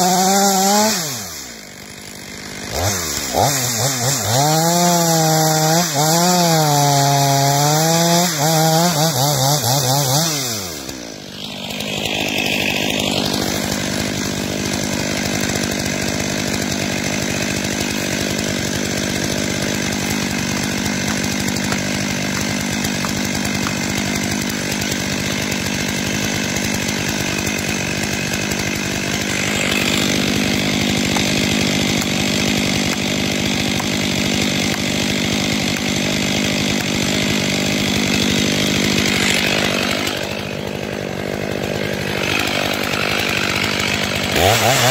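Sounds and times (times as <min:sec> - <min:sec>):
chainsaw running: 0:00.0 - 0:44.9.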